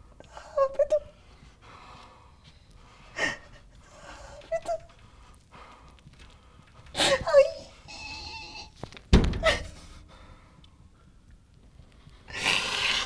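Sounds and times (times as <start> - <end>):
person breathing hard: 1.2 - 7.2, 9.6 - 11.2.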